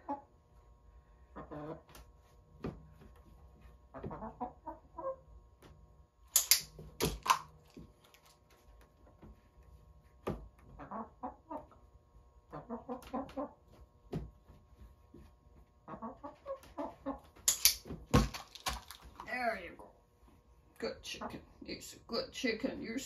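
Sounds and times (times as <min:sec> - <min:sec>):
hen clucking: 0:00.0 - 0:00.3, 0:01.3 - 0:01.9, 0:03.9 - 0:05.2, 0:10.7 - 0:11.8, 0:12.4 - 0:13.6, 0:15.8 - 0:17.3.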